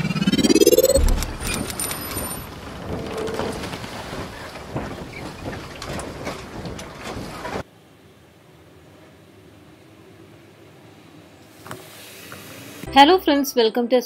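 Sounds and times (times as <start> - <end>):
deep boom: 0.4 - 1.8.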